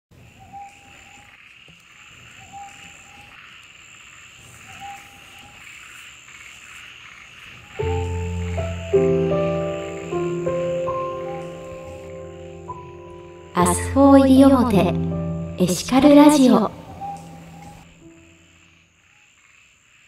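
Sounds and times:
frogs croaking: 0:00.1 - 0:20.0
high insect trill: 0:00.2 - 0:20.0
music: 0:07.8 - 0:18.4.

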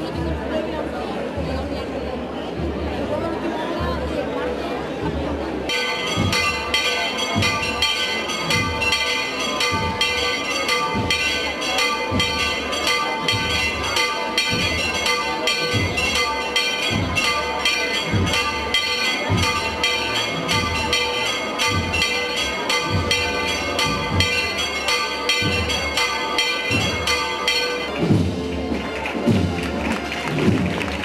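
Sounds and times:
church bells pealing: 0:05.6 - 0:29.7.

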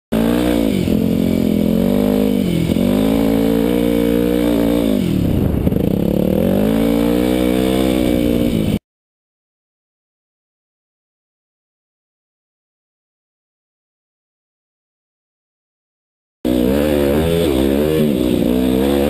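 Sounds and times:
dirt bike engine revving: 0:00.1 - 0:08.8, 0:16.5 - 0:19.0.

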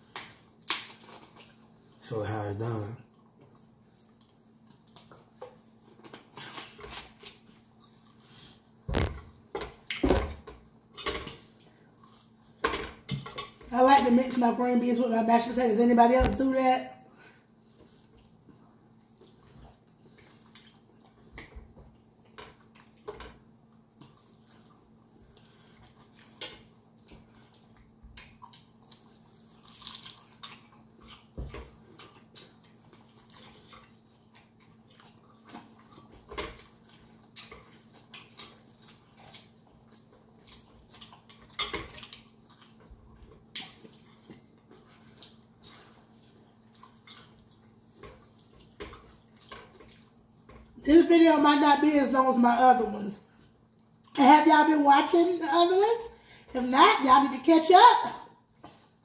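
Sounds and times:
faint steady hum: 0:00.0 - 0:59.0
wet chewing and lip smacks: 0:17.7 - 0:50.6.

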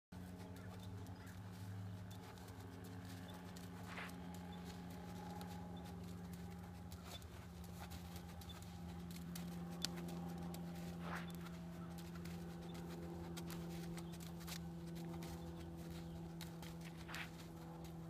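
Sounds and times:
hoofbeats on sand: 0:00.2 - 0:18.0
steady low hum: 0:00.2 - 0:18.0.

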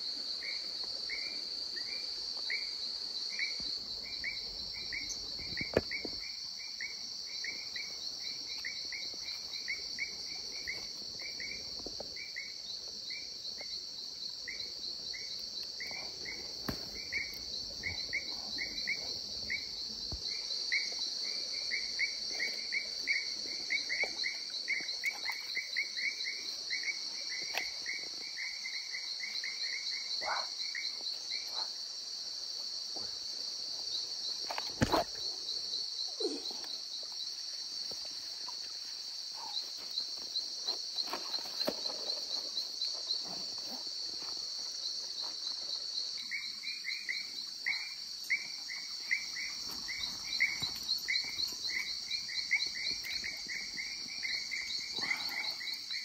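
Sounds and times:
crickets trilling: 0:00.0 - 0:56.0
short insect chirps: 0:33.6 - 0:56.0.

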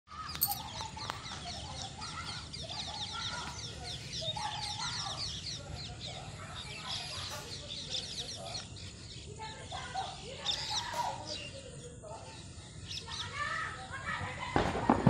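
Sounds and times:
birds chirping: 0:00.1 - 0:14.4.

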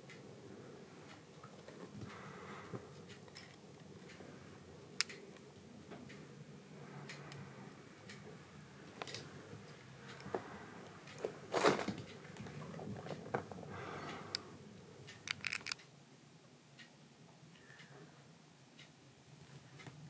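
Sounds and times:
small clicks: 0:15.1 - 0:15.9.

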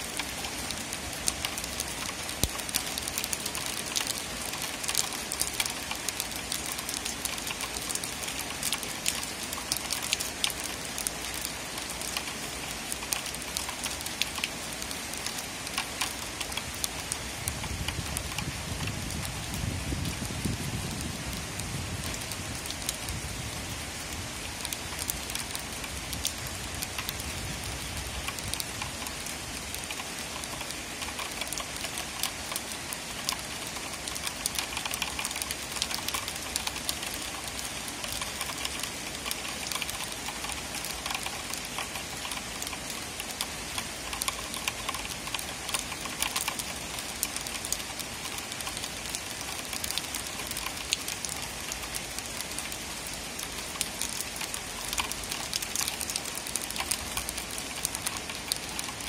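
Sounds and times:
steady rain falling: 0:00.0 - 0:59.0.

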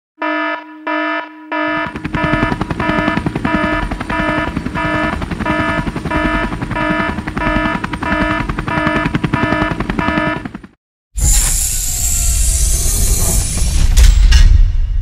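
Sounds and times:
pulsing electronic alarm tone: 0:00.2 - 0:10.7.

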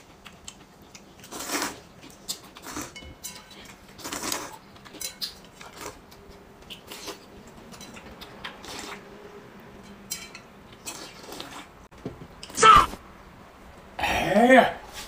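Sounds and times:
spoon clinking on metal bowl: 0:09.8 - 0:10.5.

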